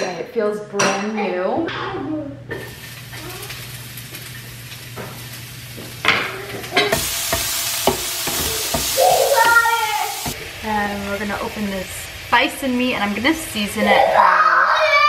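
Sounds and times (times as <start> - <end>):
onion sizzling in a pan: 2.5 - 15.0
spatula knocking against pan: 6.8 - 9.6.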